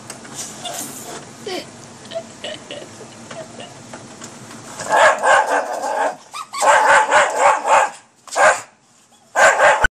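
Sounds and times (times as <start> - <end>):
small dog barking: 4.9 - 9.9.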